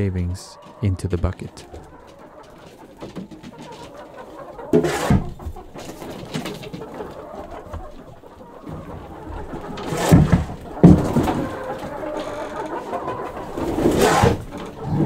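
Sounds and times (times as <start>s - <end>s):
hens cooing: 0.0s - 15.0s.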